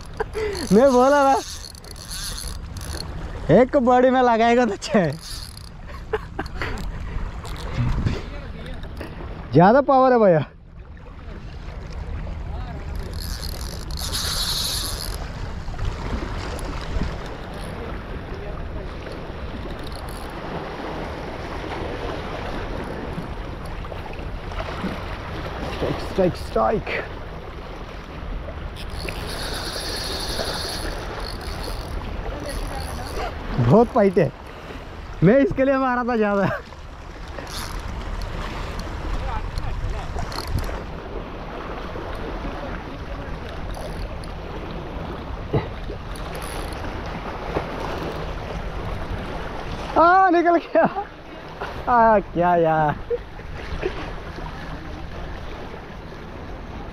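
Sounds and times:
sea water around boat: 0.0 - 56.9
wind buffeting microphone: 4.6 - 9.6, 36.6 - 49.9
rushing wind: 4.7 - 9.6.

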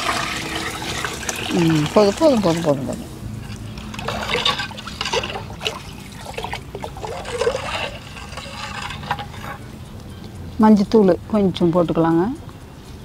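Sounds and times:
water trickling and splashing: 0.0 - 9.8.

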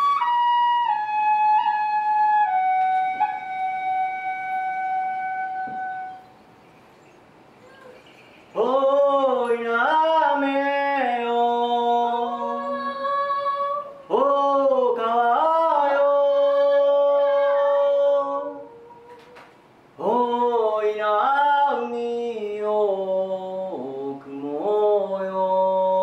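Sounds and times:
man singing unaccompanied: 8.6 - 19.3, 20.0 - 26.0.

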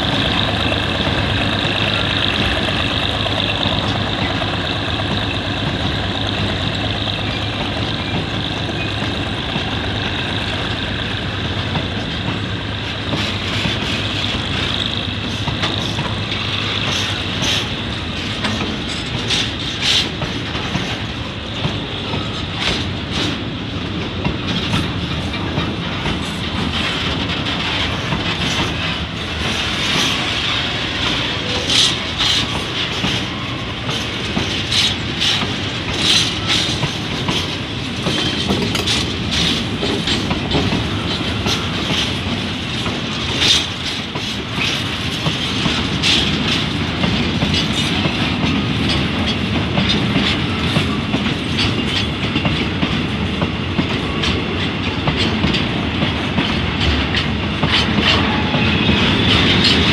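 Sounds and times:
clickety-clack over rail joints: 0.0 - 59.9
train wheels rumbling on rails: 0.0 - 59.9.

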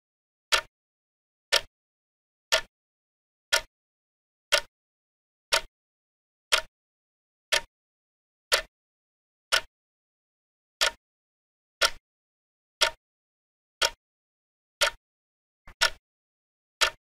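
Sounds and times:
clock ticking: 0.5 - 0.7, 1.5 - 1.7, 2.5 - 2.7, 3.5 - 3.7, 4.5 - 4.7, 6.5 - 6.7, 7.5 - 7.7, 8.5 - 8.7, 10.8 - 11.0, 11.8 - 12.0, 12.8 - 13.0, 13.8 - 14.0, 14.8 - 15.0, 15.7 - 16.0, 16.8 - 17.0.

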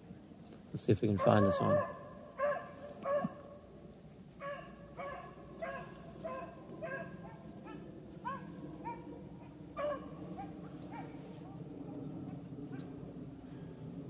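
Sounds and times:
hounds baying: 1.2 - 3.6, 4.4 - 11.2.

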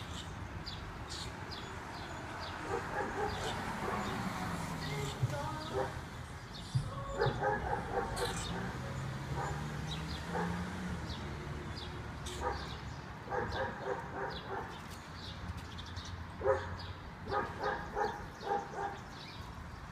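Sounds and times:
dog barking: 2.6 - 4.3, 5.7 - 6.0, 7.2 - 10.8, 12.3 - 14.8, 16.4 - 19.1.

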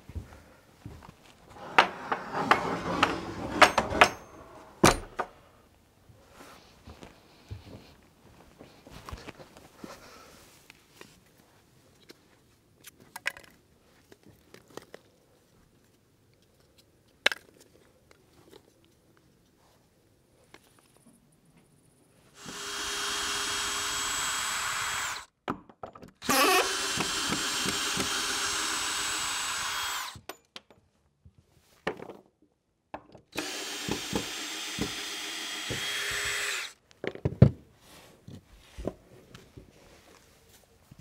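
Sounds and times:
knocks and clicks: 1.6 - 5.3
electric drill running: 22.4 - 25.3, 26.2 - 30.2, 33.4 - 36.8.

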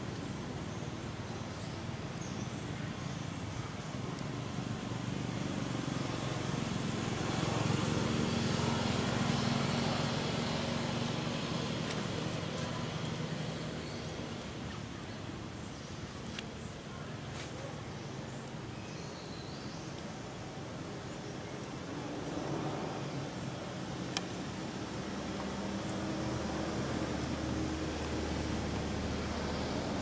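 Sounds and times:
vehicle passing by: 4.4 - 14.7, 21.7 - 30.0.

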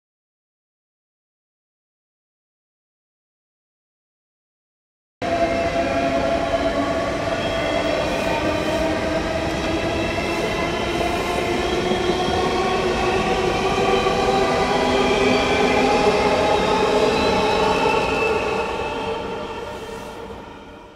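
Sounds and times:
train wheels rumbling on rails: 5.2 - 20.9.

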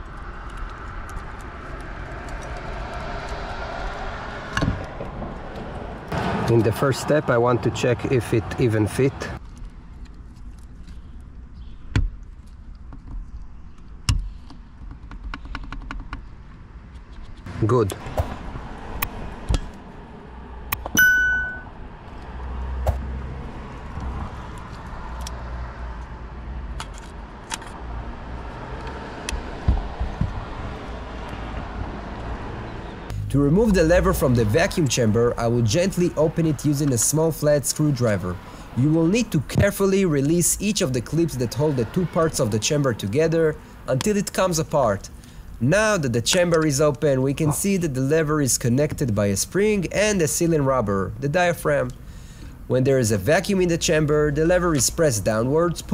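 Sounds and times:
steady outdoor rumble: 0.0 - 55.9
short ringing ding: 21.0 - 21.8.

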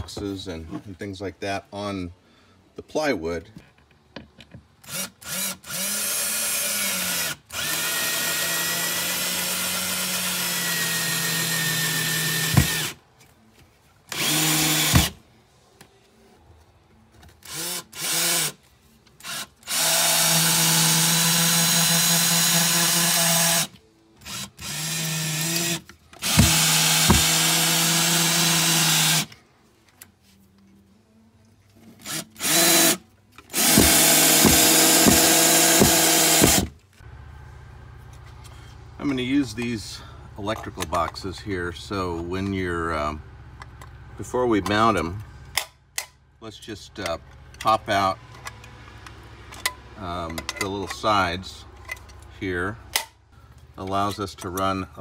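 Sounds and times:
cordless drill driving screws: 4.8 - 13.0, 14.1 - 15.2, 17.4 - 18.6, 19.2 - 29.3, 32.0 - 36.7.

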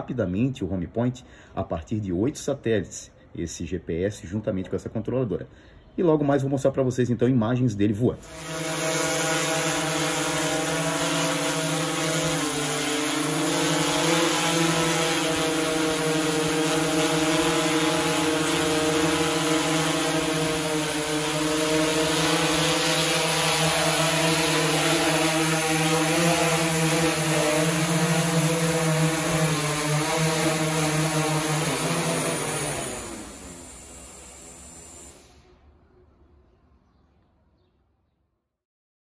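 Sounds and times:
drone motors humming: 8.2 - 35.4
propeller hiss: 8.2 - 35.5.

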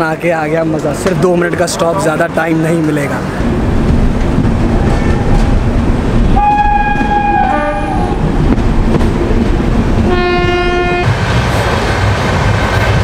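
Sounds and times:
train rumbling: 0.0 - 13.0
train horn blasts: 6.4 - 8.1, 10.1 - 11.1.

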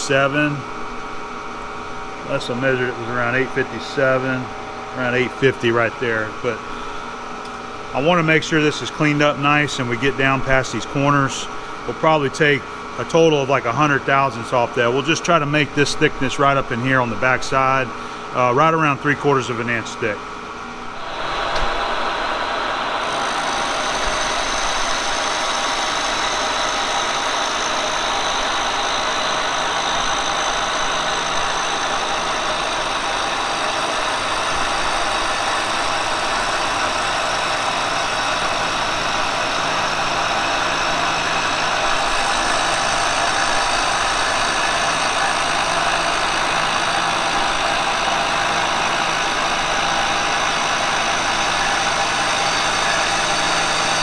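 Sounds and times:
high steady cutter tones: 20.9 - 54.0
milling machine cutting metal: 21.0 - 54.0.

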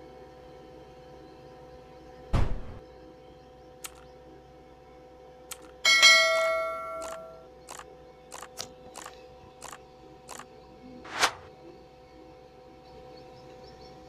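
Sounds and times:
short clicks: 3.8 - 4.1, 5.5 - 5.8, 7.0 - 10.5.

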